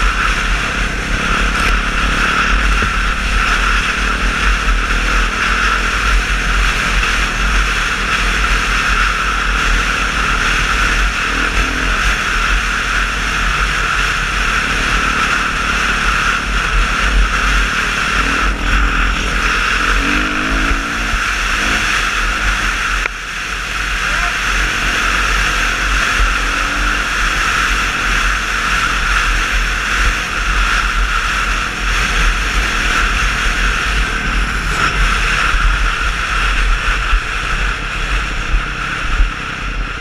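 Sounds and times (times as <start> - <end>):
dirt bike engine: 0.0 - 40.0
wind rumble on microphone: 0.0 - 40.0.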